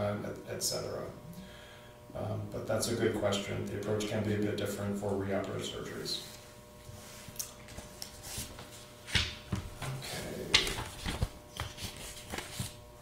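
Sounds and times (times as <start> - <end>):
paper rustling: 10.5 - 12.8.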